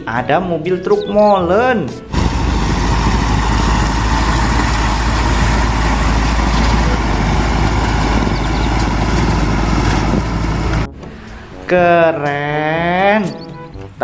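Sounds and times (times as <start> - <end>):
diesel truck engine rumbling: 2.0 - 10.9.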